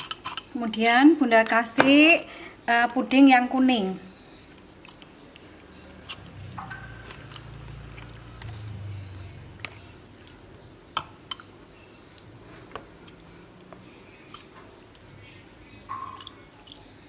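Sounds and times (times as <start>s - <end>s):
soft wet squelching: 4.4s - 10.6s, 11.3s - 17.0s.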